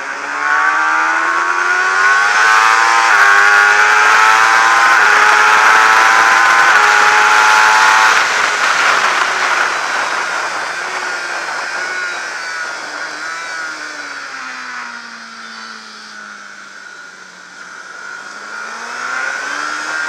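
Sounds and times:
motorcycle engine: 0.0s - 20.0s
wind rush: 6.8s - 15.1s.

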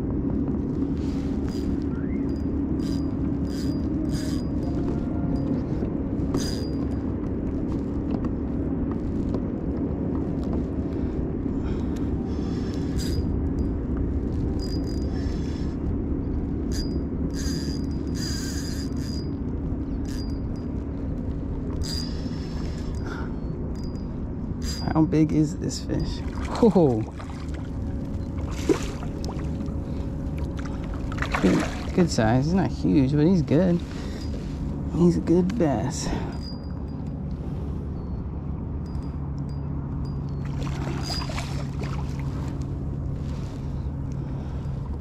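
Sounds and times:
low rumble: 0.0s - 45.0s
fishing reel drag buzzing: 0.9s - 7.0s, 12.3s - 26.6s, 38.8s - 44.7s.

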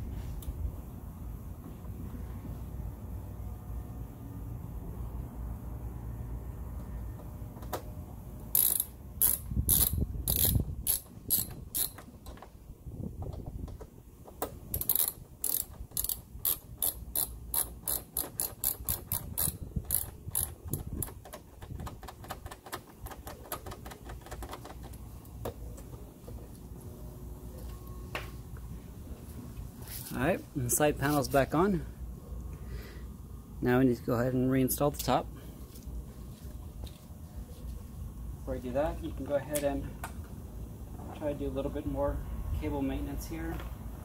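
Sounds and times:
hand ratchet clicking: 8.5s - 12.4s, 14.7s - 25.0s.

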